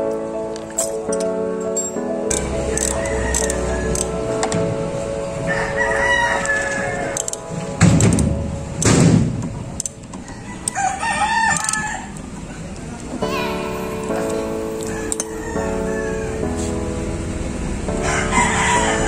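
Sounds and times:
rooster crowing: 0:02.7 - 0:04.0, 0:05.4 - 0:07.2, 0:10.2 - 0:12.2, 0:14.8 - 0:16.4, 0:18.0 - 0:19.0.

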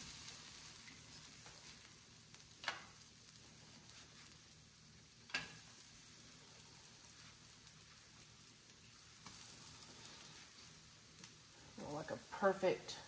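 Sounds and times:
pancakes sizzling on a griddle: 0:00.0 - 0:13.0
spatula clacking on griddle: 0:00.9 - 0:03.0, 0:05.2 - 0:05.9.

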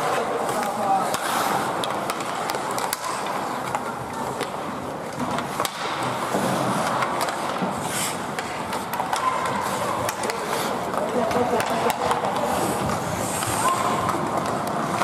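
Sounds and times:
skates scraping on ice: 0:00.0 - 0:15.0
sticks clicking on puck: 0:00.0 - 0:15.0.

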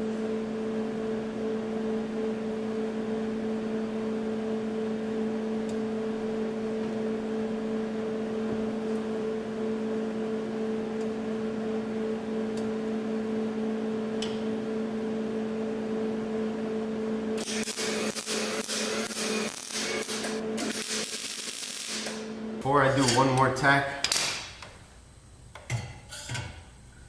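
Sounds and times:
steady machine hum: 0:00.0 - 0:27.0.

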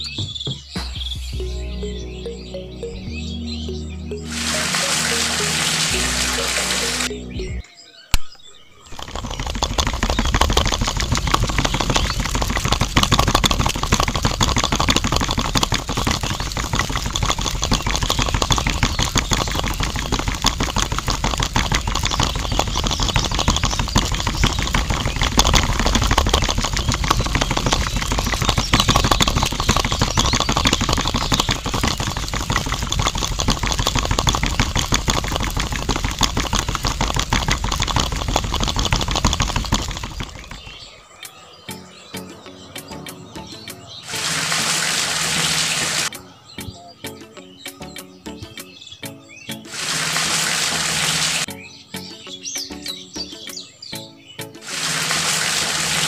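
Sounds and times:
small motor buzzing rattle: 0:08.9 - 0:40.9.

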